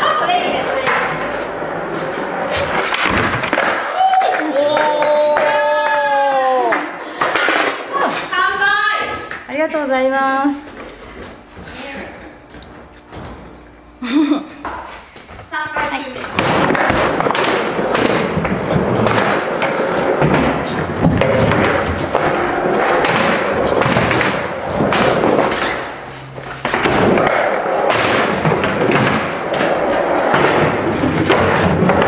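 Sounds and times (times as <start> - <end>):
skateboard wheels rolling on concrete: 0.0 - 9.4, 15.8 - 32.0
skateboard clacks and thuds: 15.8 - 25.8, 26.6 - 32.0.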